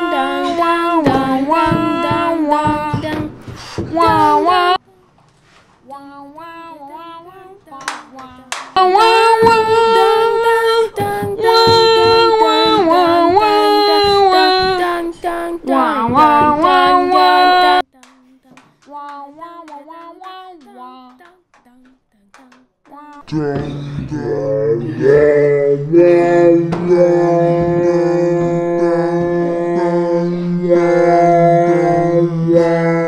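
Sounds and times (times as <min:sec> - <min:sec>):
person singing: 0:00.0 - 0:05.1, 0:05.8 - 0:33.0.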